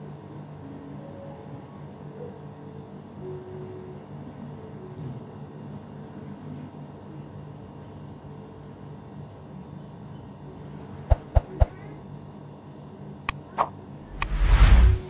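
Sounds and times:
cricket chirping: 0.0s - 15.0s
low steady hum: 13.4s - 15.0s.

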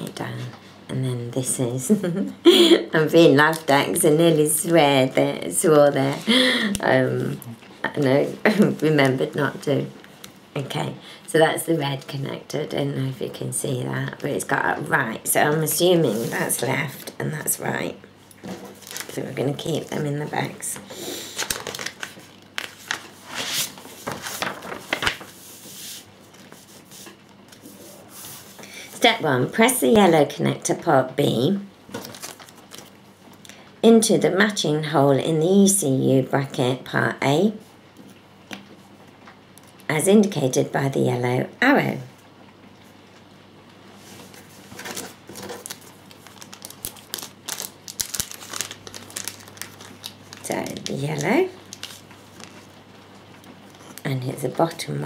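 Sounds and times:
paper rustling: 18.4s - 20.5s, 21.2s - 28.7s, 31.9s - 33.0s, 44.0s - 52.8s
plastic bag crinkling: 18.4s - 25.5s, 31.9s - 33.4s, 44.0s - 54.1s.

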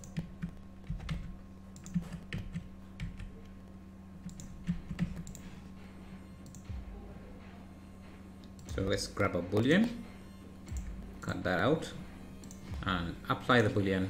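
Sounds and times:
faint low hum: 0.0s - 14.0s
keyboard keystrokes: 4.2s - 5.4s.

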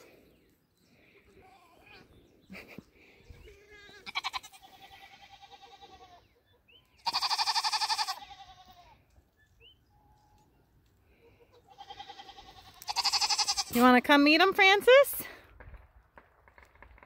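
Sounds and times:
goats bleating: 3.4s - 6.4s, 7.0s - 9.0s, 11.4s - 13.9s.

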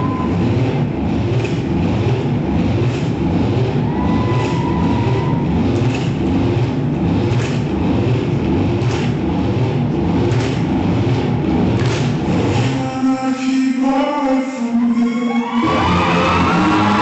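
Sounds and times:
rumbling soundtrack music: 0.0s - 17.0s
sharp clack: 1.4s - 1.8s, 5.8s - 9.4s, 10.2s - 11.0s, 11.7s - 12.9s.

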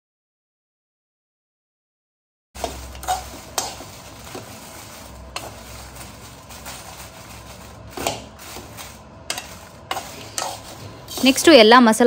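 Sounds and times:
spoon scraping a pan: 2.6s - 11.6s
chillies sizzling in a pan: 2.6s - 12.0s.

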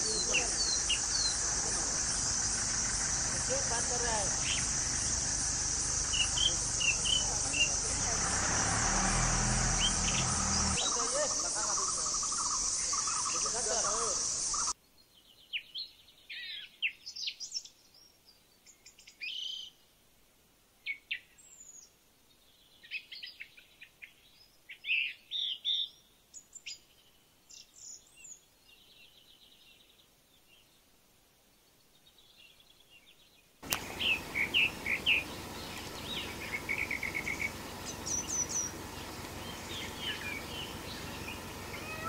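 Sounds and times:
bird calls and chirps: 0.0s - 8.2s, 9.2s - 19.8s, 20.8s - 30.8s, 31.8s - 42.0s
pulsing insect drone: 0.0s - 14.7s, 33.6s - 42.0s.

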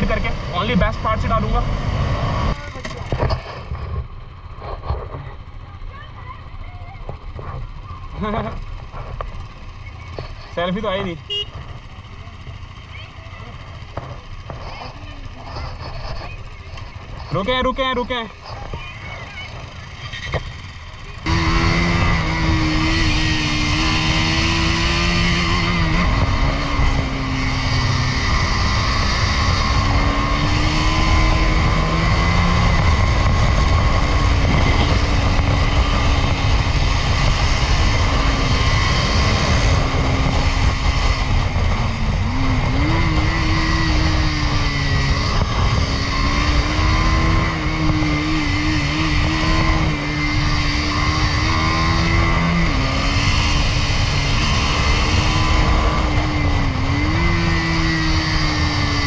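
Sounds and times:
motorcycle engine running: 0.0s - 59.0s
wind rush on microphone: 20.6s - 59.0s.

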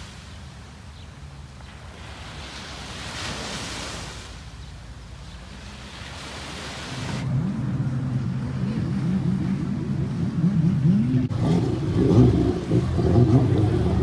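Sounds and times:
sea waves washing: 0.0s - 14.0s
deep wavering low rumble: 7.2s - 14.0s.

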